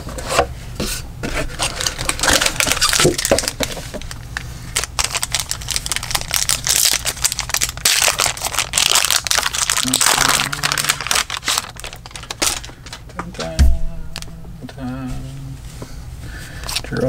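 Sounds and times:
foil wrapper crinkling: 1.5 - 13.2.

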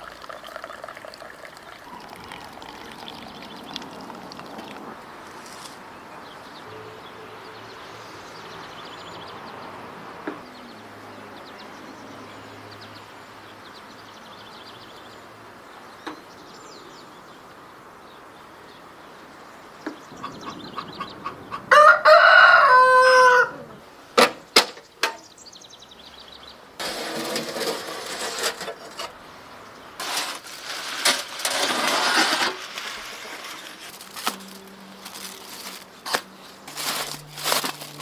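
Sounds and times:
rooster crowing: 20.9 - 23.8.

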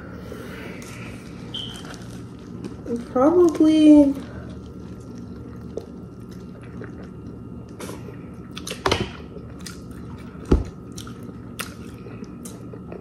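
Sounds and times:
people chewing and biting: 4.4 - 13.0.

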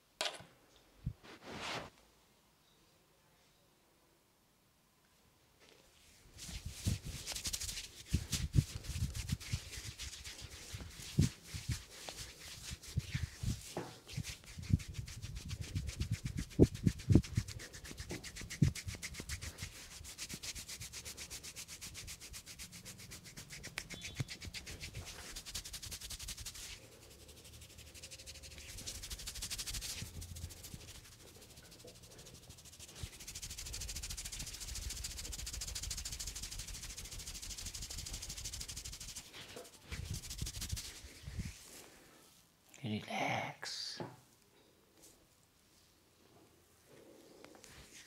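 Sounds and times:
fingers rubbing through hair: 6.1 - 41.8.

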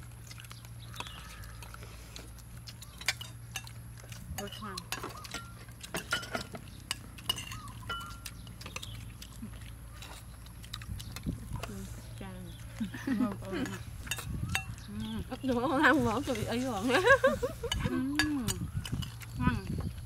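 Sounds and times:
cutlery clinking on plates: 4.4 - 8.9, 13.6 - 14.8.

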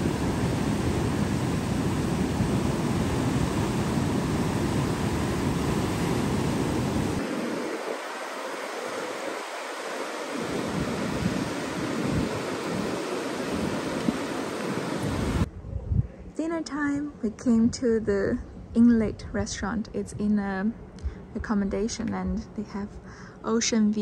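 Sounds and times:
roar of rushing water: 0.0 - 15.5
wind rumbling on microphone: 0.0 - 22.6.

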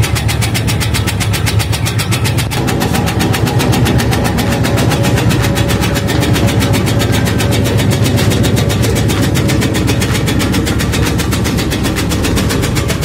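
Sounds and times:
electric motor hum: 0.0 - 13.0
tobacco-shredding machine chopping: 0.0 - 13.0.

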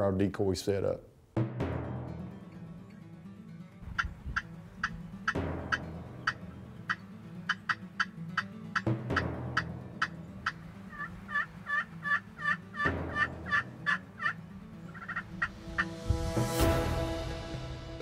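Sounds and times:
turkey call clucks: 3.8 - 15.9
turkey call yelps: 3.9 - 15.9.

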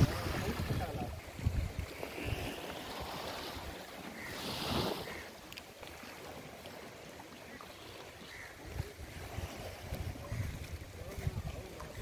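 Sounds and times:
wind buffeting microphone: 0.0 - 3.8, 8.6 - 12.0
open water hiss: 0.0 - 12.0.

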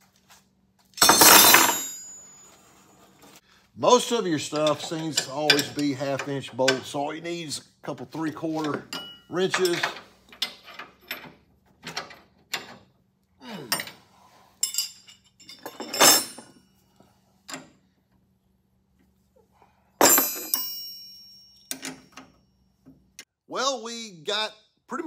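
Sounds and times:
wrenches clinking on bolts: 0.9 - 2.4, 4.4 - 7.0, 8.6 - 12.9, 14.6 - 16.6, 20.0 - 22.4
ringing metal clank: 1.0 - 2.6, 8.9 - 9.9, 20.0 - 22.2.

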